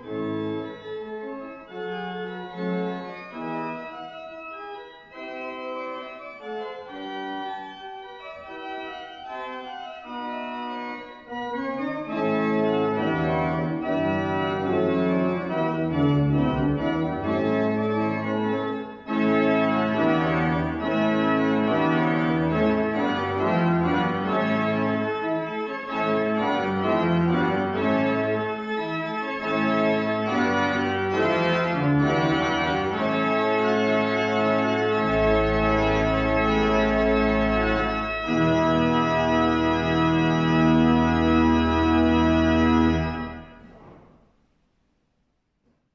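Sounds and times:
organ music in sustained chords: 0:00.0 - 0:44.0.

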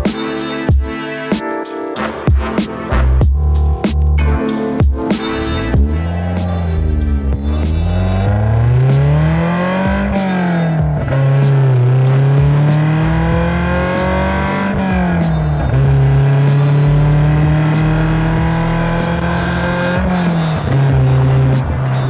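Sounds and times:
car engine accelerating: 0:05.3 - 0:22.0.

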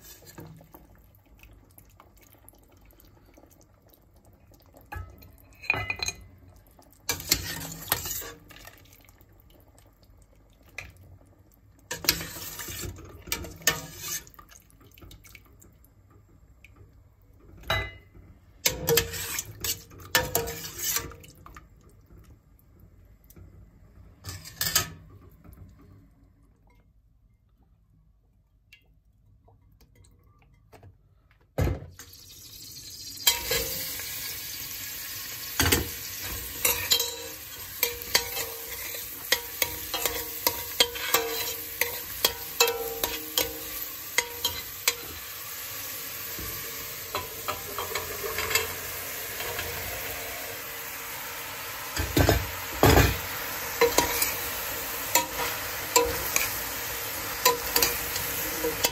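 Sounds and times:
hot oil sizzling: 0:00.0 - 0:01.2, 0:04.8 - 0:08.9, 0:11.6 - 0:14.5, 0:18.6 - 0:21.3, 0:32.0 - 0:58.9
metal skimmer scraping a pot: 0:07.1 - 0:08.4, 0:12.0 - 0:14.4, 0:18.7 - 0:21.2, 0:36.2 - 0:45.2, 0:47.1 - 0:49.7.

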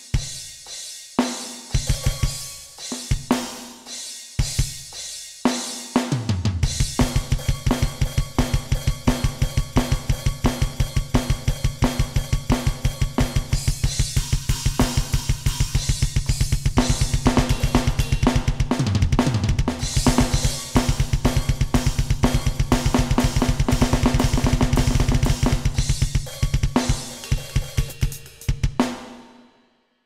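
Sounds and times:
cymbals: 0:00.0 - 0:29.4
double-bass drum kicks: 0:14.1 - 0:26.7.

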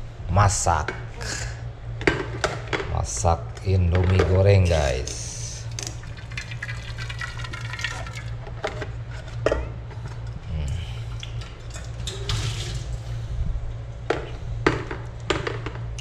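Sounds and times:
low hum: 0:00.0 - 0:16.0
water running into a steel pot: 0:06.0 - 0:08.4, 0:11.5 - 0:13.0
water splashing into a sink: 0:06.0 - 0:08.4, 0:12.0 - 0:12.9.

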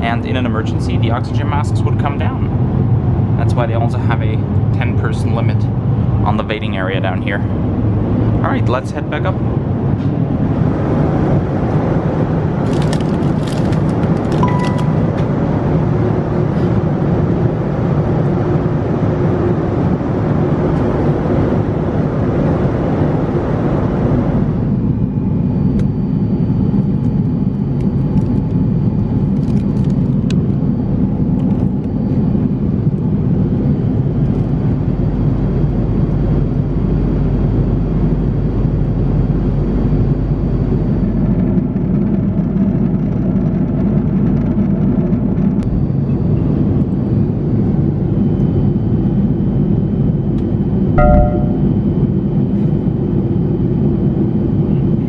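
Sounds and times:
airliner cabin rumble: 0:00.0 - 0:47.9
short high beep: 0:14.4 - 0:15.1, 0:51.0 - 0:51.8.

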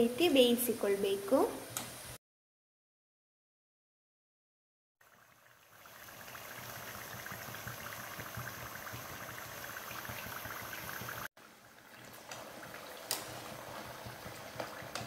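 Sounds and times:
dough deep-frying in oil: 0:05.0 - 0:15.0.

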